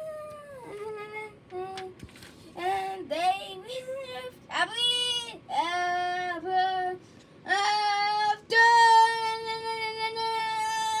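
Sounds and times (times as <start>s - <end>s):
child singing: 2.6s - 11.0s.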